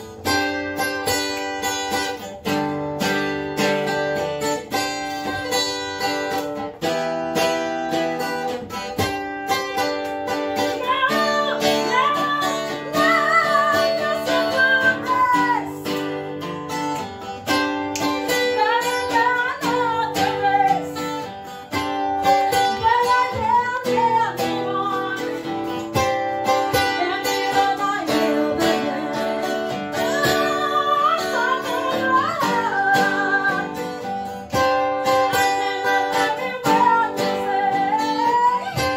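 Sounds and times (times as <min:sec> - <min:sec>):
strummed acoustic guitar: 0:00.0 - 0:38.9
woman singing: 0:07.9 - 0:16.4, 0:17.5 - 0:38.9.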